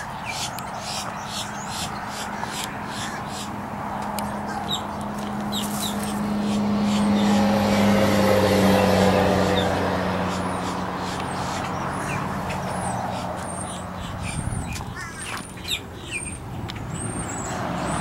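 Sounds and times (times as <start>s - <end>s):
vehicle motor passing: 0.0s - 15.6s.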